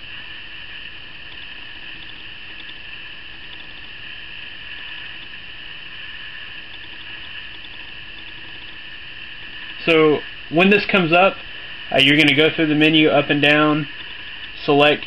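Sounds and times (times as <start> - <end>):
faint hum: 0.0 - 15.0
steady hiss: 0.0 - 15.0.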